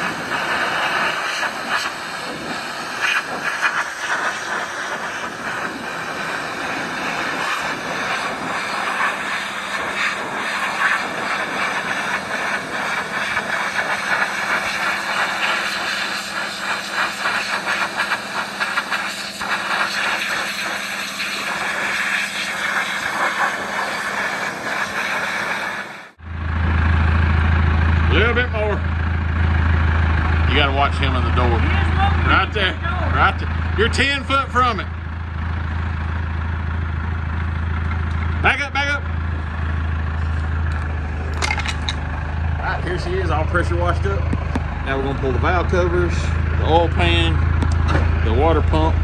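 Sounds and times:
pressure washer spraying metal: 0.0 - 26.2.

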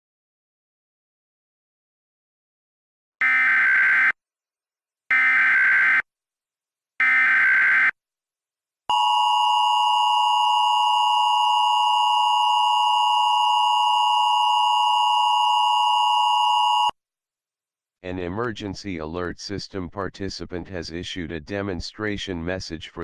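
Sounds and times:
two-tone alarm: 3.2 - 4.2, 5.1 - 6.1, 7.0 - 8.0, 8.9 - 17.0.

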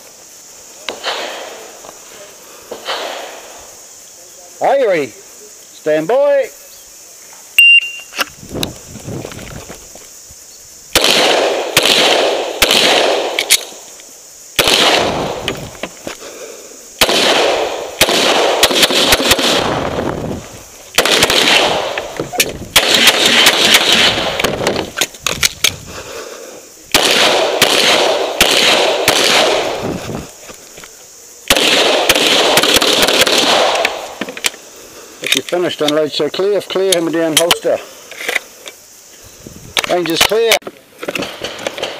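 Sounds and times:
shot timer beep: 7.6 - 8.1
pistol shots: 11.0 - 13.7, 14.6 - 15.5, 17.0 - 19.8, 21.0 - 24.7, 26.9 - 29.8, 31.5 - 34.1.

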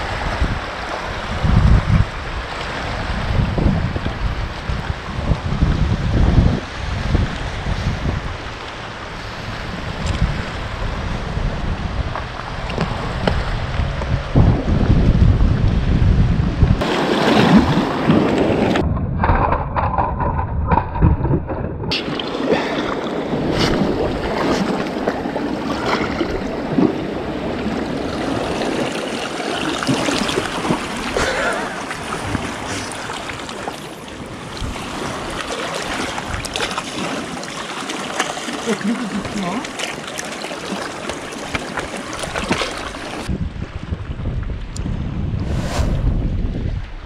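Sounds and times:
wind buffeting microphone: 0.0 - 37.1, 41.2 - 47.0
waves washing against rocky shore: 16.8 - 18.8, 21.9 - 43.4.

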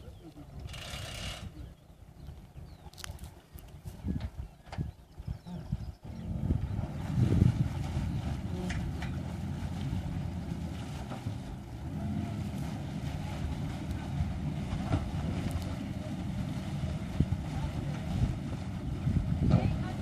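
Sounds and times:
outboard motor running: 0.0 - 2.7, 4.3 - 20.0
wind on microphone: 0.0 - 20.0
water churning: 5.5 - 20.0.

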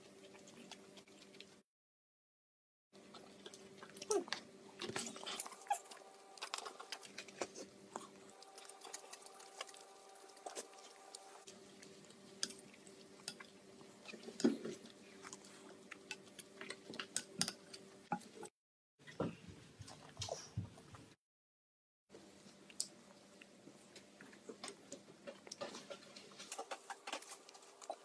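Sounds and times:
toddler chewing and lip smacking: 3.0 - 17.8
faint electrical hum: 3.0 - 21.2.

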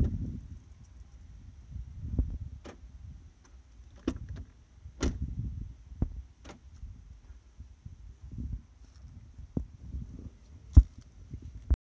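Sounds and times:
low rumble on microphone: 0.0 - 11.8
sharp clicks and knocks: 3.4 - 5.2.

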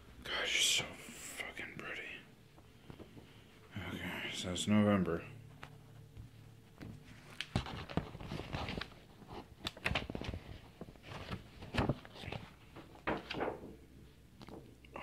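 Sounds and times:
paper pages rustling and turning: 6.7 - 13.8
paper flaps and taps: 6.8 - 9.0, 9.6 - 13.8.

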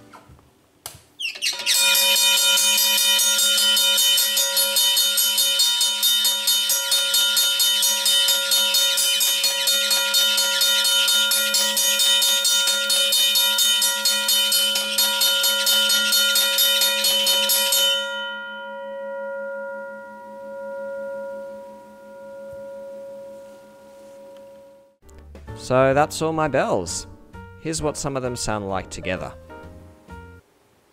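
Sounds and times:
railway crossing bell ringing: 1.5 - 25.0.

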